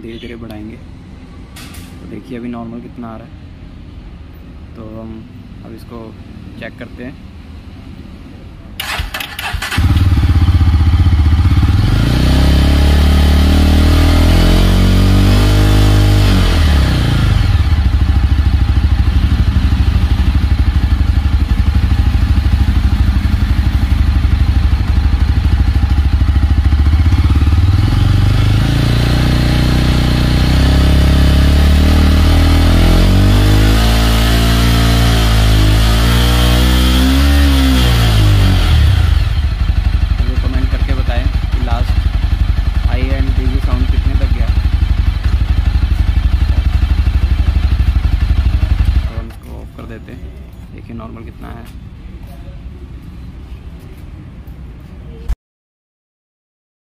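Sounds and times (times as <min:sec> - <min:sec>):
motorcycle engine revving: 0:08.8 - 0:49.5.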